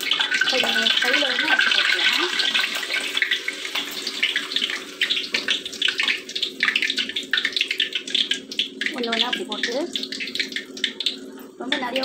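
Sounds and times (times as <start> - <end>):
food deep-frying in oil: 0.0 - 12.0.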